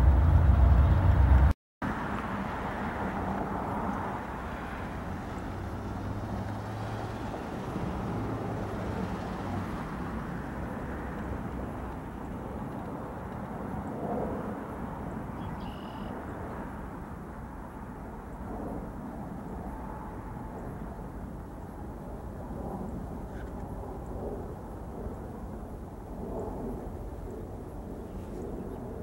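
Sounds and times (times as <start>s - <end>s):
diesel locomotive rumble: 0.0s - 1.5s.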